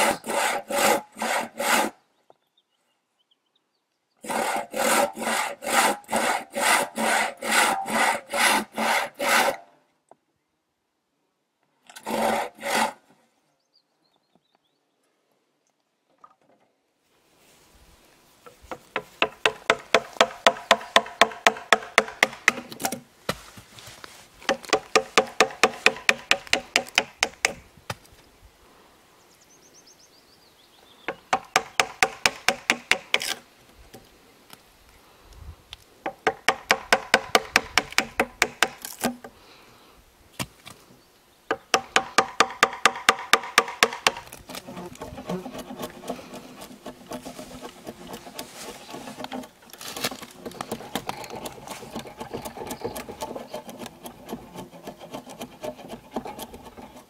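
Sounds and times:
hammer striking chisel into wood: 18.9 - 22.8, 24.5 - 27.6, 31.3 - 33.2, 36.1 - 38.8, 41.5 - 44.2
knife shaving wood: 44.3 - 57.0.

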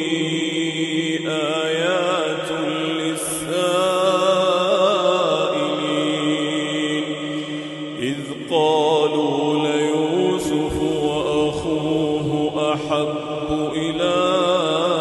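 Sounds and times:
man chanting melodically: 0.0 - 15.0.

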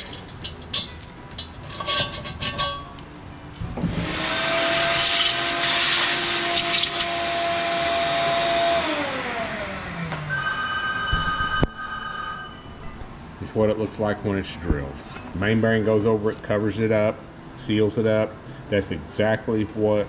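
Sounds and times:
vacuum motor whining: 3.8 - 10.4.

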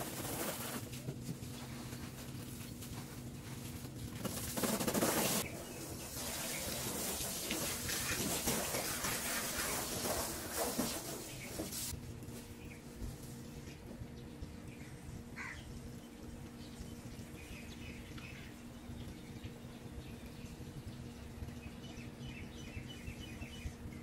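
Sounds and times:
garden hose spraying water: 0.0 - 12.4.

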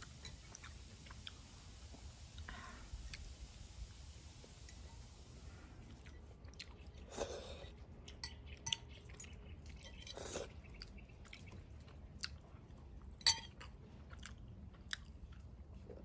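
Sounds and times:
chewing pasta: 0.0 - 1.5, 5.5 - 16.0.

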